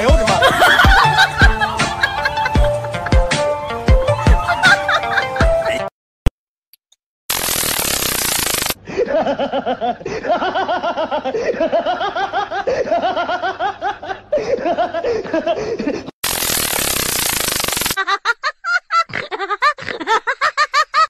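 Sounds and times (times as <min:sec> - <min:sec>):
high-pitched laughter: 0:00.4 - 0:03.3, 0:04.1 - 0:05.9, 0:18.0 - 0:21.0
loud hissing noise: 0:07.3 - 0:08.8, 0:16.2 - 0:18.0.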